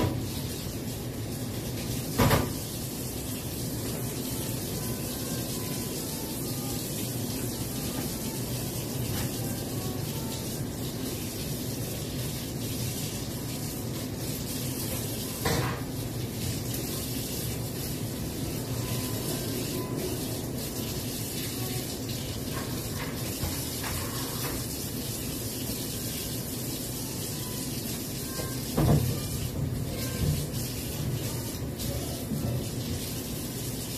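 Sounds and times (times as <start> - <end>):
tap running into sink: 1.8 - 2.7, 15.2 - 15.9, 22.4 - 24.8, 28.2 - 30.8.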